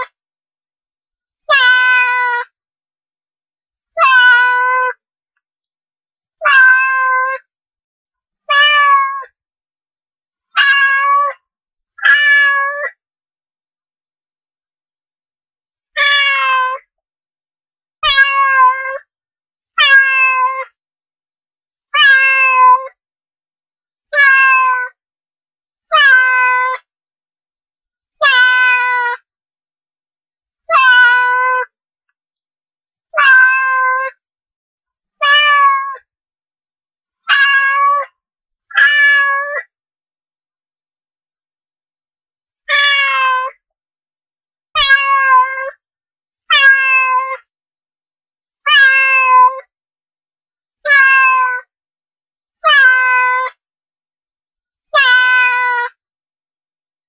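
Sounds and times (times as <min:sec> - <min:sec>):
cat meowing: 0:01.5 - 0:02.4, 0:04.0 - 0:05.0, 0:06.4 - 0:07.4, 0:08.5 - 0:09.3, 0:10.6 - 0:11.4, 0:12.0 - 0:13.0, 0:16.0 - 0:16.8, 0:18.0 - 0:19.0, 0:19.8 - 0:20.7, 0:22.0 - 0:23.0, 0:24.1 - 0:25.0, 0:25.9 - 0:26.8, 0:28.2 - 0:29.2, 0:30.7 - 0:31.7, 0:33.2 - 0:34.2, 0:35.2 - 0:36.0, 0:37.3 - 0:38.1, 0:38.7 - 0:39.7, 0:42.7 - 0:43.6, 0:44.8 - 0:45.8, 0:46.5 - 0:47.4, 0:48.7 - 0:49.7, 0:50.8 - 0:51.7, 0:52.6 - 0:53.6, 0:55.0 - 0:55.9.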